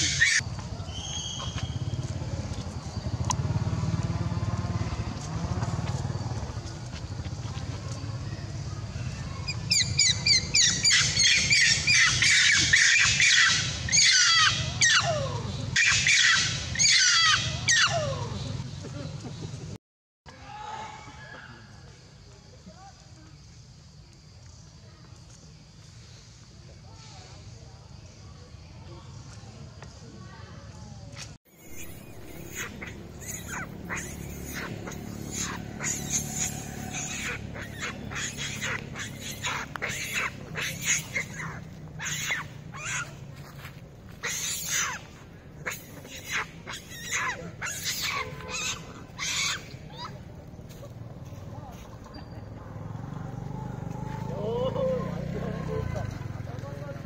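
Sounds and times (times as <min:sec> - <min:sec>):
monkey screaming: 0:00.0 - 0:00.4, 0:09.5 - 0:18.4, 0:31.5 - 0:43.2, 0:44.1 - 0:50.3.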